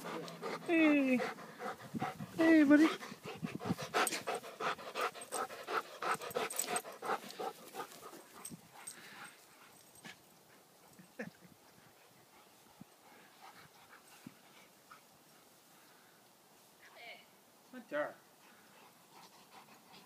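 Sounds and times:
dog panting quickly: 0.0s - 10.7s, 11.8s - 15.5s, 18.4s - 20.0s
dogs playing: 0.0s - 15.9s.

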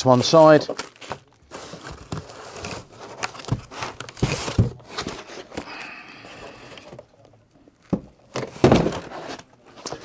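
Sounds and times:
foam blocks knocking cardboard box: 7.9s - 9.1s.

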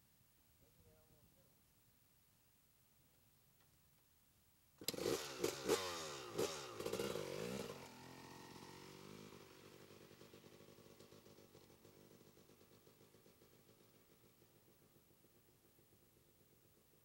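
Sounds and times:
dirt bike engine revving: 4.8s - 10.8s.

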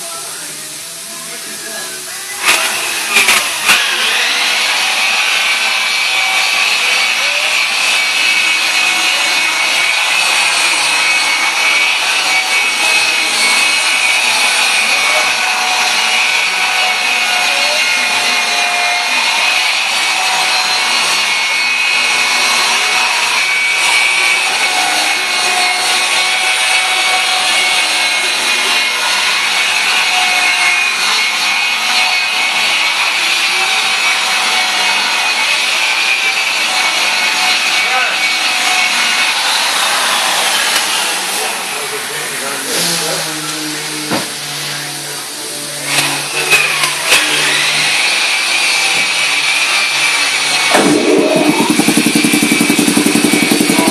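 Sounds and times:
machine whine over hiss: 50.7s - 53.9s.

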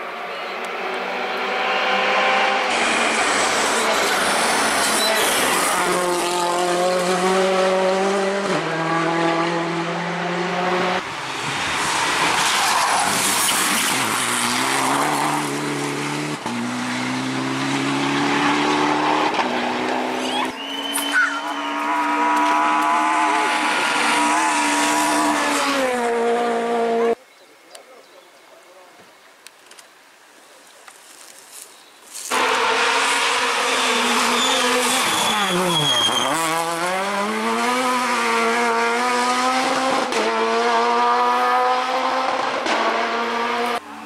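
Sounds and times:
rally car engines revving: 0.0s - 27.2s, 32.3s - 44.0s
tyres sliding on loose gravel: 30.8s - 32.4s.

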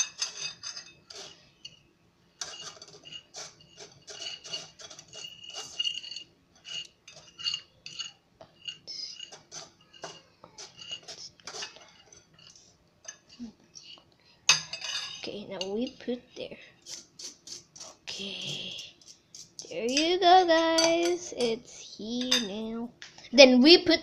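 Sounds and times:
fork scraping glass bowl: 0.0s - 1.8s, 2.4s - 14.0s.

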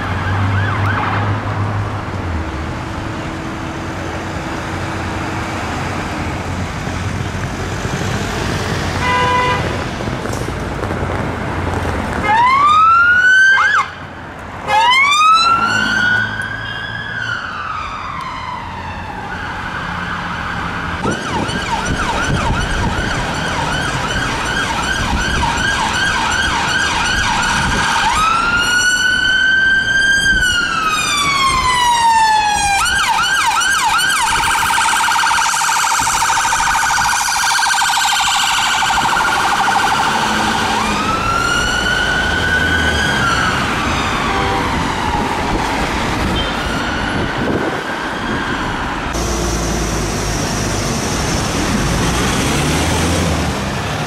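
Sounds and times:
siren yelping and wailing: 0.0s - 1.2s, 12.2s - 14.0s, 14.6s - 49.3s
police siren wailing: 0.0s - 1.4s, 12.2s - 14.0s, 14.6s - 54.0s
city traffic: 0.0s - 54.0s
horn-like note: 49.2s - 50.1s.

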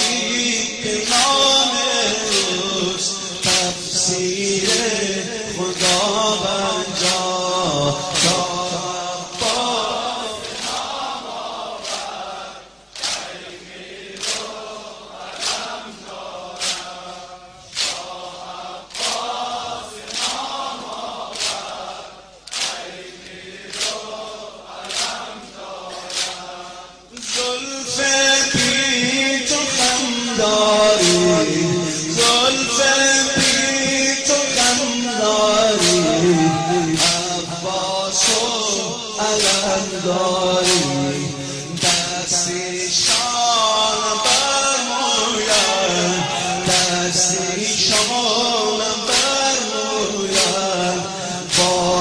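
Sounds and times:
men chanting in unison: 0.0s - 52.0s
chest-beating slaps: 5.6s - 9.8s, 13.0s - 13.4s, 16.6s - 17.0s, 17.7s - 18.2s, 18.9s - 19.4s, 20.0s - 21.8s, 22.4s - 24.2s, 25.9s - 26.5s, 30.9s - 32.6s, 35.8s - 43.5s, 50.3s - 50.7s, 51.5s - 52.0s.

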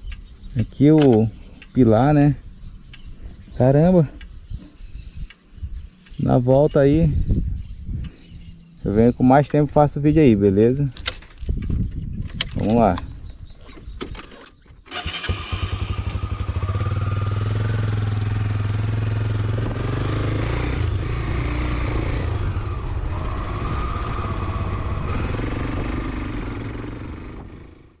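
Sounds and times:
motorcycle engine running: 14.9s - 28.0s.

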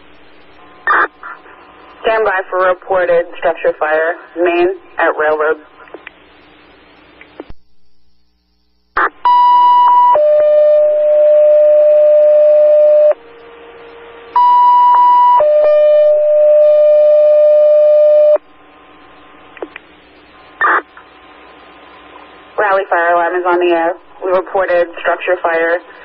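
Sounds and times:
radio hiss: 0.0s - 16.6s, 17.6s - 26.0s
radio squelch clicks: 5.8s - 7.6s, 19.5s - 19.9s.

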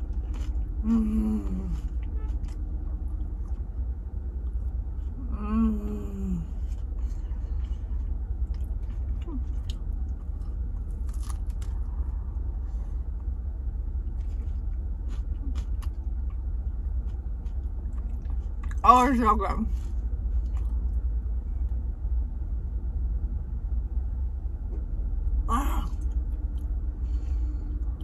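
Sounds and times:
person chewing crunchy food: 0.0s - 5.2s, 6.4s - 18.8s, 20.1s - 21.1s
low rumble: 0.0s - 28.0s
person humming mmm: 0.8s - 1.9s, 5.2s - 6.6s.

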